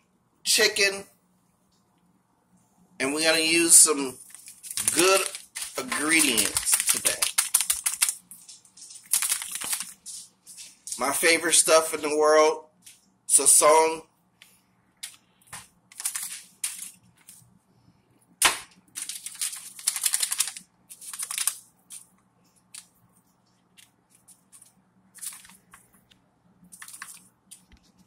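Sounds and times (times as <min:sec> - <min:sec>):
aluminum foil crinkling: 0:04.2 - 0:11.3, 0:15.9 - 0:17.4, 0:18.9 - 0:22.1, 0:22.7 - 0:26.0, 0:26.7 - 0:28.0.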